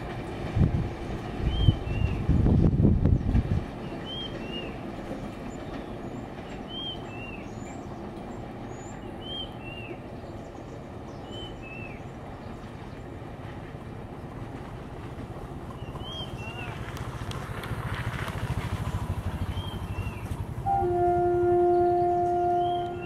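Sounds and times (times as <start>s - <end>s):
diesel train rumbling: 0.0s - 23.0s
bird two-note whistled call: 21.5s - 23.0s.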